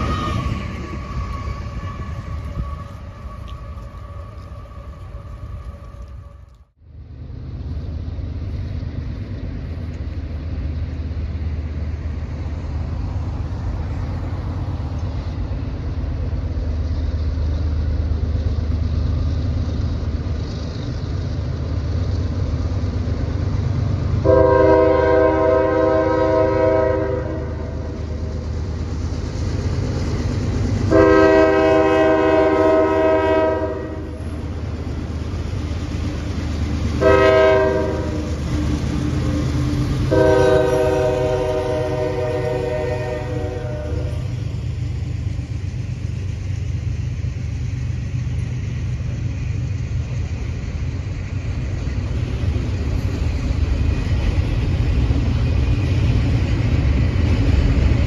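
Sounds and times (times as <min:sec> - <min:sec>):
diesel locomotives rumbling: 0:00.0 - 0:58.0
locomotive air horn blasts: 0:24.2 - 0:28.0, 0:30.9 - 0:34.2, 0:37.0 - 0:38.4, 0:40.1 - 0:44.3.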